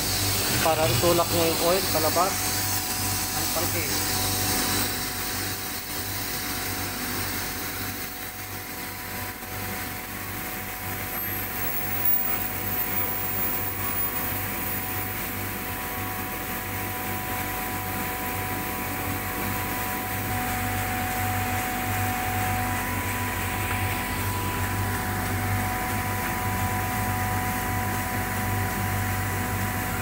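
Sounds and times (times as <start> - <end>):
faint steady whine: 10.6 - 17.3.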